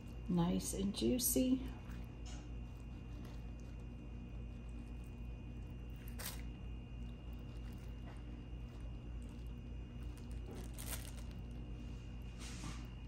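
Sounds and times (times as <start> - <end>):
steady low hum: 0.0 - 13.0
plastic bag crinkling: 4.6 - 11.9.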